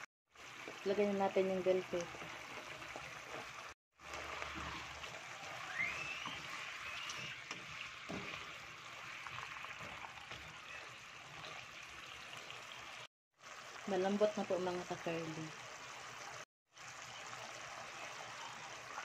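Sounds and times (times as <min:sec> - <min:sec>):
sauce bubbling in a wok: 0:00.3 - 0:19.0
spatula scraping and knocking pan: 0:06.2 - 0:10.6.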